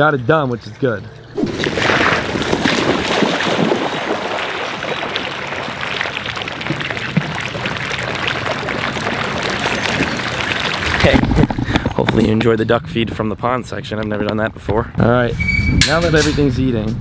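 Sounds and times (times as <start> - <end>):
ducks splashing in pond water: 1.3 - 11.8
wind noise on microphone: 9.9 - 13.4, 14.5 - 17.0.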